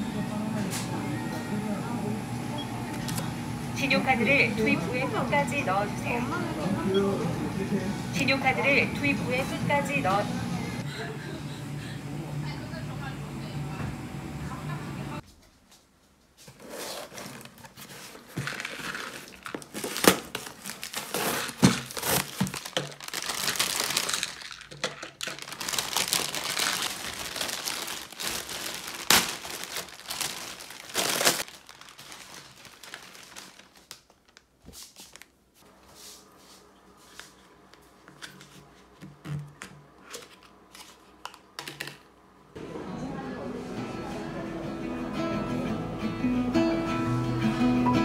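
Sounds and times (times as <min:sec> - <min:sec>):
plastic packaging crinkling: 0:16.6 - 0:35.4
packaging snapping and tearing: 0:17.0 - 0:35.3.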